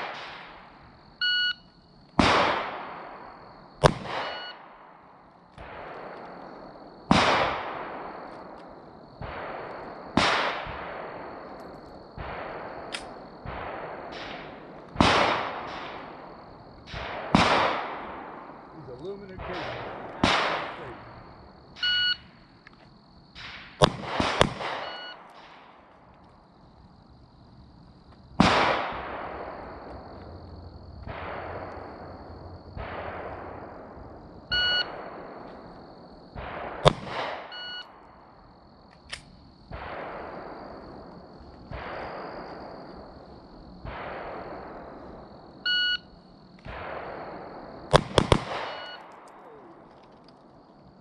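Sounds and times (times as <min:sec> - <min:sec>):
short electronic beeps: 0:01.2 - 0:01.7, 0:21.8 - 0:22.2, 0:34.5 - 0:34.9, 0:37.6 - 0:37.9, 0:45.7 - 0:46.1
pistol shots with echo: 0:02.2 - 0:21.2, 0:23.4 - 0:26.0, 0:28.4 - 0:30.2, 0:31.0 - 0:38.1, 0:39.2 - 0:43.0, 0:46.6 - 0:50.0.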